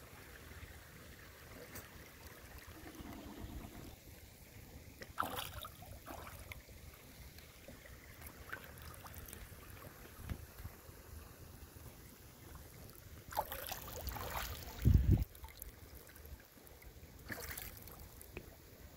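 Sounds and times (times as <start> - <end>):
pond water lapping: 0.0 - 18.9
water splash: 5.0 - 6.6, 13.3 - 15.8, 17.2 - 18.2.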